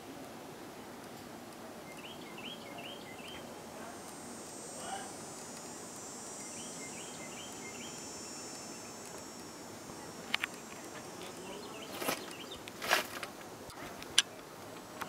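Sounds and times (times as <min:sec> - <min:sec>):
outdoor hiss: 0:00.0 - 0:15.0
insects trilling: 0:00.4 - 0:15.0
faint chirps: 0:01.6 - 0:15.0
sharp clicks: 0:03.1 - 0:15.0.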